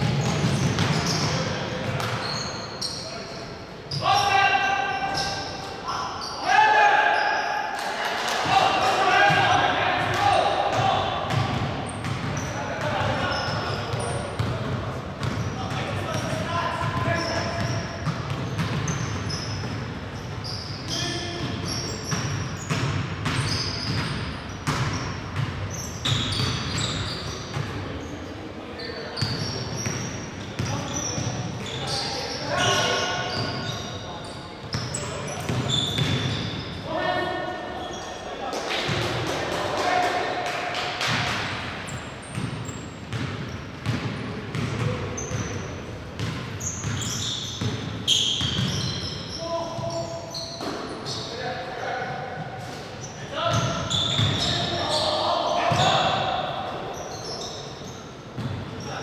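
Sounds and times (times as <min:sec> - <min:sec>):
basketball bouncing on court: 0:00.0 - 0:02.3, 0:09.3 - 0:27.8, 0:29.2 - 0:31.4, 0:34.7 - 0:36.6, 0:42.2 - 0:49.1, 0:53.5 - 0:54.6, 0:58.3 - 0:58.6
sneakers squeaking: 0:00.0 - 0:07.8, 0:08.4 - 0:40.1, 0:41.0 - 0:59.0
short high squeaks: 0:02.2 - 0:06.5, 0:23.4 - 0:24.2, 0:24.9 - 0:27.5, 0:30.9 - 0:36.8, 0:46.6 - 0:51.3, 0:53.0 - 0:55.2
ball bouncing on gym floor: 0:42.3 - 0:45.6.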